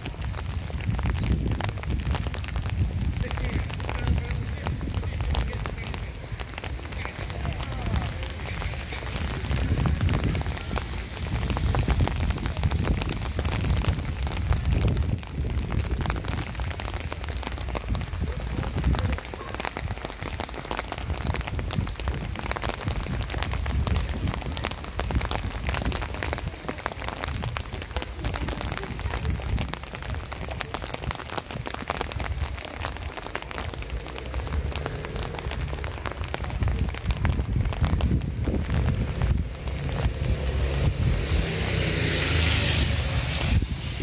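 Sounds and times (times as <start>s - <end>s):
steady rain: 0.0s - 44.0s
low rumble: 20.8s - 44.0s.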